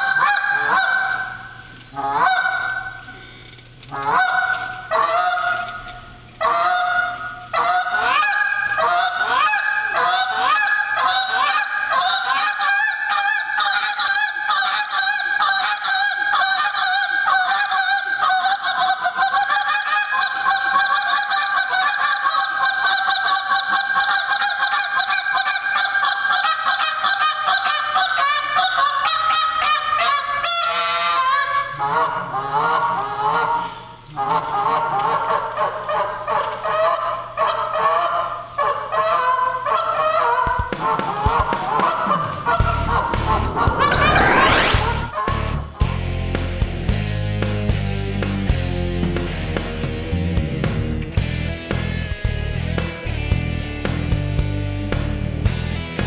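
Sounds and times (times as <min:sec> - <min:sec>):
goose call honks and clucks: 0:00.0 - 0:03.1, 0:03.9 - 0:05.8, 0:06.4 - 0:46.0.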